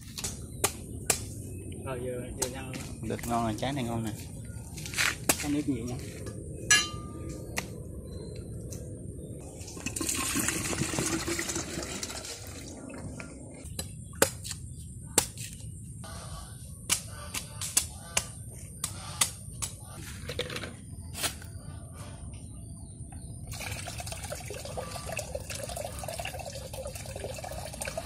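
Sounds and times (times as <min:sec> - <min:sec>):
water pouring into plastic jug: 0:09.7 - 0:13.0, 0:23.5 - 0:28.0.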